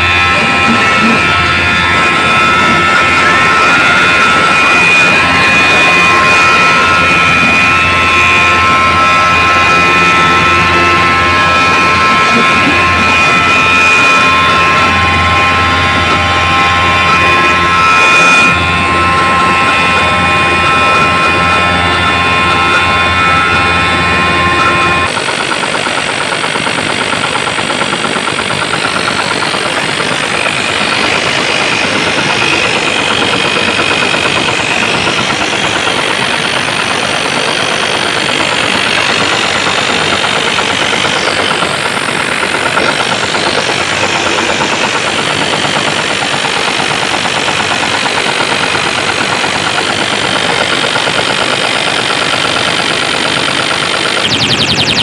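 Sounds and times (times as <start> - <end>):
distorted loud dance music: 0.0 - 55.0.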